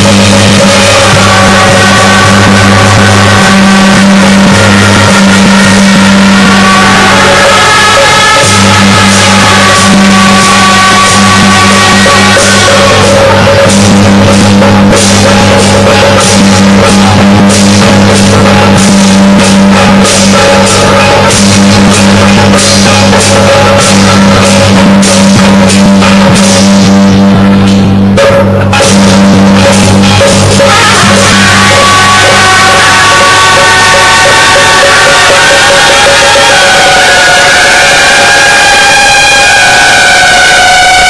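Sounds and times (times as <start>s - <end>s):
higher steady tone: 0.0s - 24.7s
loud overdriven music with drumming: 0.0s - 41.0s.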